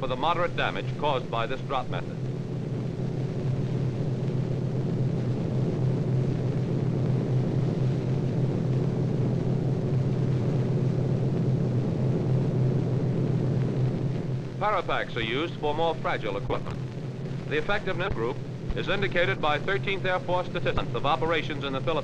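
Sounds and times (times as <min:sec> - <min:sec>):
propeller aircraft engines droning: 0:00.0 - 0:22.0.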